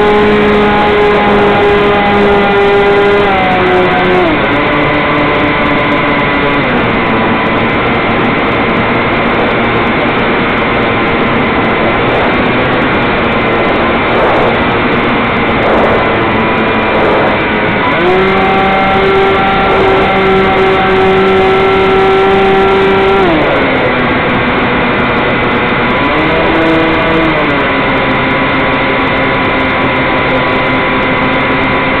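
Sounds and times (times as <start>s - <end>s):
electric motor and propeller whining: 0.0s - 32.0s
wind rushing: 8.8s - 20.6s.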